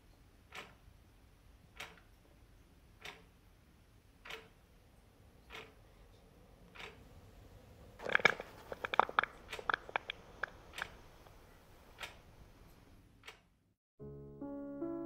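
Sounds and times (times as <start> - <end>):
sharp irregular clicks: 0.4 - 0.9, 1.7 - 2.2, 3.0 - 3.4, 4.2 - 4.6, 5.4 - 5.8, 6.7 - 7.1, 8.0 - 13.6
piano music: 14.0 - 15.0.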